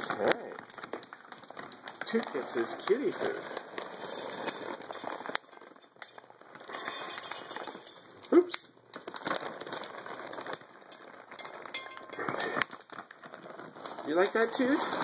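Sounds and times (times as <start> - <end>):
kibble clinking onto ceramic plate: 3.9 - 8.7, 9.7 - 12.6.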